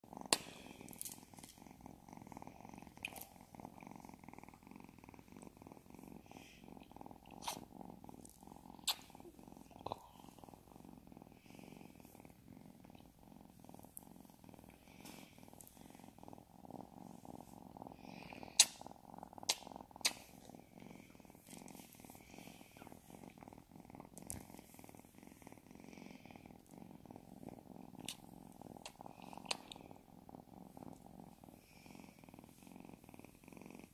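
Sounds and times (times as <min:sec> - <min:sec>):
kitten purring: 0:00.0 - 0:33.9.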